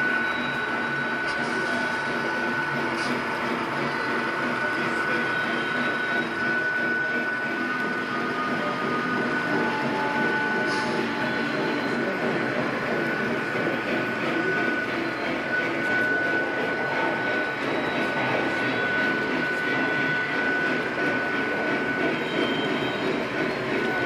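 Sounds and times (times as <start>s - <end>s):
model train cars rolling on track: 0.0s - 24.0s
thin high whine: 0.0s - 24.0s.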